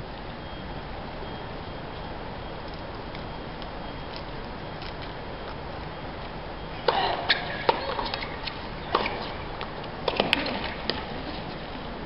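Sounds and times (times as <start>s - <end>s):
venue background hum: 0.0s - 12.0s
ball bouncing on hard court: 6.8s - 9.3s
tennis ball hit by racket: 6.8s - 9.3s.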